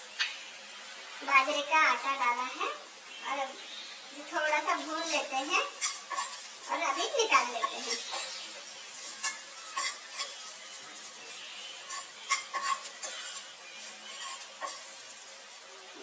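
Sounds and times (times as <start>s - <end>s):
frying sizzle: 0.0s - 16.0s
spoon scraping onions in pan: 3.8s - 15.7s
spoon clinking against pan: 5.8s - 6.4s, 9.2s - 10.5s, 11.8s - 14.9s.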